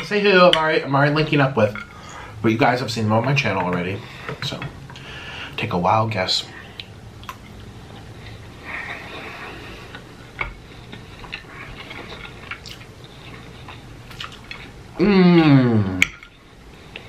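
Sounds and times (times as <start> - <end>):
person chewing fries: 6.7 - 17.0.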